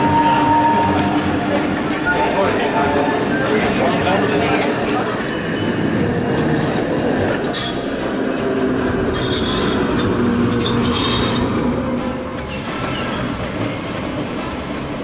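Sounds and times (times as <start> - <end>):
high-pitched wheel squeals: 0.0 - 1.3, 9.2 - 11.5
rail vehicle clattering on track: 0.0 - 15.0.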